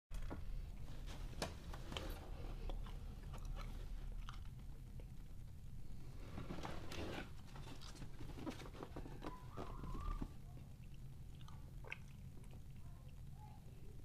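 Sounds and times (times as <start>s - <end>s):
hands handling cardboard box: 6.2s - 10.4s.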